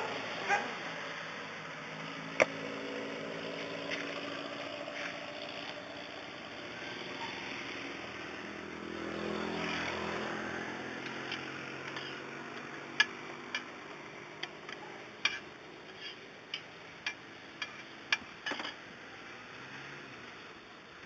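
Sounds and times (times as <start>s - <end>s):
passing vehicle engine hum: 0.0s - 18.2s, 18.8s - 21.0s
metal spatula striking griddle: 15.2s - 18.3s.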